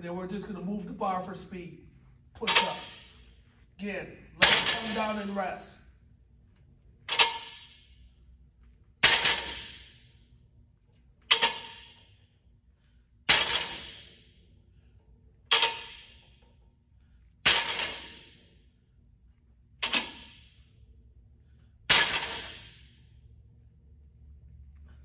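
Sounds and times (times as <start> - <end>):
barbell clanging onto steel rack: 2.4 - 3.1, 4.4 - 5.2, 7.1 - 7.8, 9.0 - 9.9, 11.3 - 12.0, 13.3 - 14.1, 15.5 - 16.3, 17.4 - 18.4, 21.9 - 22.8.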